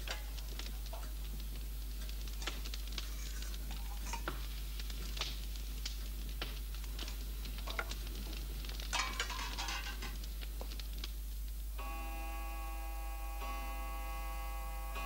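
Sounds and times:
steady low hum: 0.0 - 15.0
metal plates clinking: 9.0 - 10.2.

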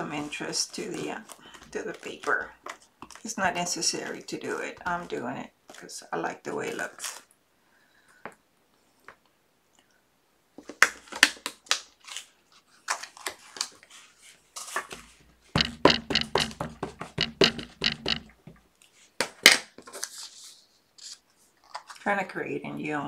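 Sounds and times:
stamp tapping on tabletop: 15.6 - 18.4.

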